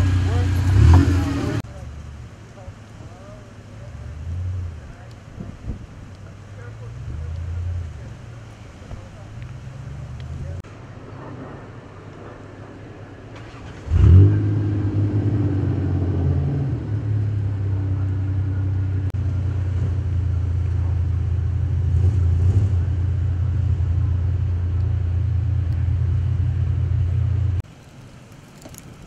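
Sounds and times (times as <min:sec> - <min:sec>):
engine starting and idling: 0:13.3 - 0:14.3.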